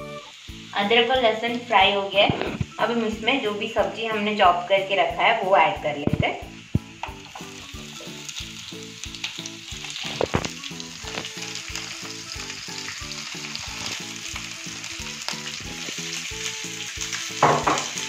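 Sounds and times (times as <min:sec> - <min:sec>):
vegetables sizzling in hot oil: 0:00.0 - 0:18.0.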